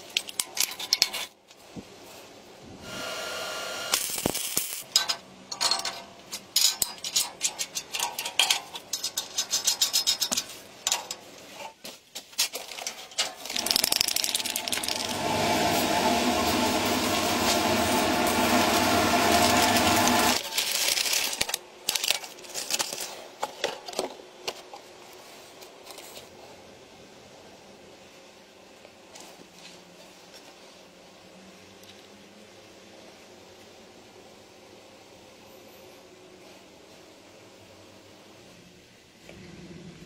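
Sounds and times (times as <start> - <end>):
small hard parts clicking and rattling: 0.0 - 1.6, 4.0 - 15.2, 20.4 - 24.9
small electric motor running: 13.6 - 20.4.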